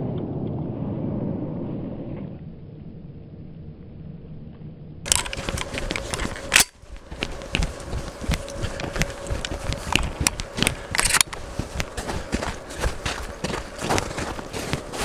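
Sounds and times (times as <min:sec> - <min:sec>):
clothing rustling: 0:05.1 - 0:15.0
footsteps crunching on snow: 0:05.1 - 0:15.0.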